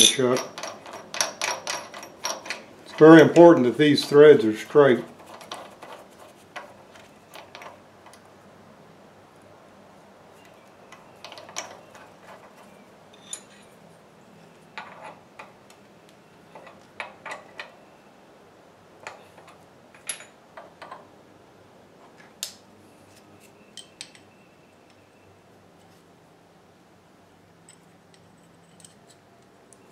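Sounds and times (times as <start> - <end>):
light metallic clicks and clinks: 0.0 - 4.2, 10.9 - 13.8, 23.7 - 24.4, 27.6 - 29.9.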